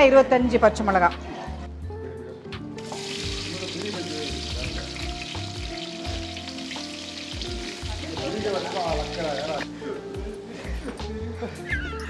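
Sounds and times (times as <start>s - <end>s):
onions sizzling in hot oil: 2.8s - 9.7s.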